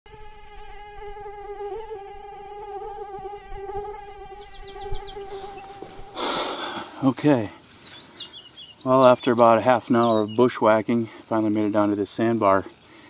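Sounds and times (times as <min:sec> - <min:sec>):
insect swarm humming: 0:00.1 - 0:13.0.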